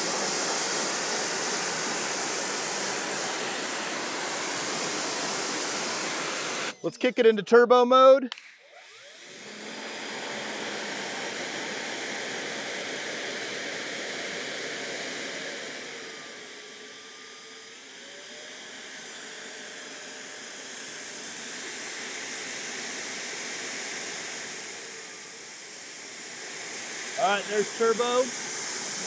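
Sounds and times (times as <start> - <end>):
pressure washer jet hissing: 0.0 - 6.7, 26.0 - 29.0.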